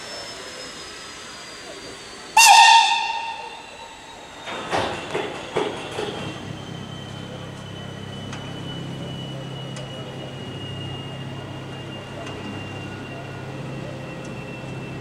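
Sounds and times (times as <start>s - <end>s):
electric locomotive humming: 0.0s - 15.0s
high whine dropping in pitch: 2.4s - 4.4s.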